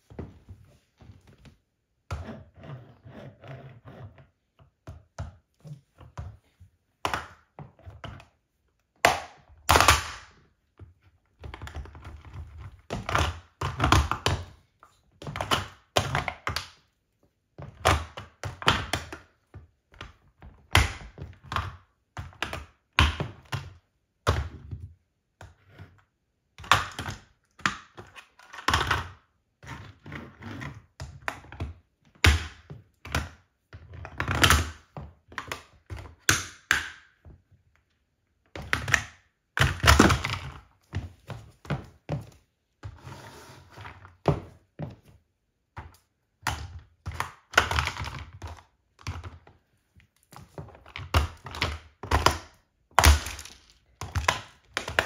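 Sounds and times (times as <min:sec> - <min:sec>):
plastic toy cracking under heels: 0:09.0 - 0:10.4, 0:38.6 - 0:40.6, 0:50.7 - 0:55.0.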